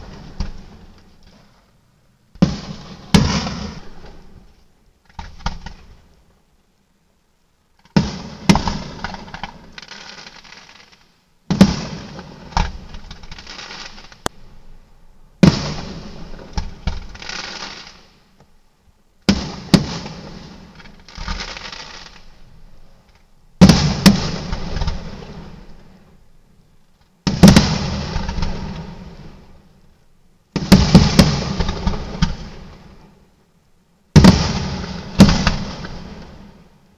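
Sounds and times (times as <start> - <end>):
firework crackling: 2.4 - 6.1, 7.8 - 14.5, 15.4 - 18.4, 19.2 - 22.6, 23.6 - 26.2, 27.3 - 29.8, 30.5 - 33.1, 34.1 - 36.8
firework shells bursting: 34.1 - 36.5.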